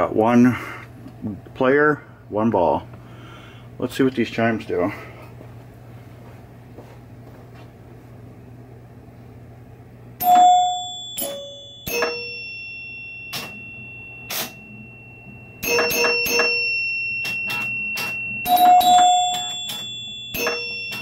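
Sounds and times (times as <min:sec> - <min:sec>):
low hum: 0:07.9 - 0:21.0
pinball chime strikes: 0:10.2 - 0:21.0.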